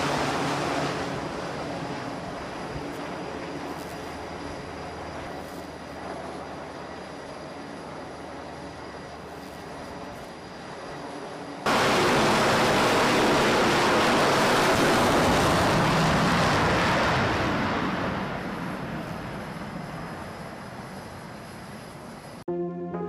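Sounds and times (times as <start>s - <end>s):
jet roar: 0.0s - 6.8s, 11.6s - 22.4s.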